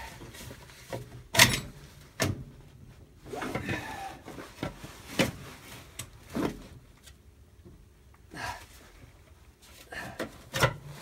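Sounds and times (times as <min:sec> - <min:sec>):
metal clicks and clunks: 0:01.0 - 0:02.4.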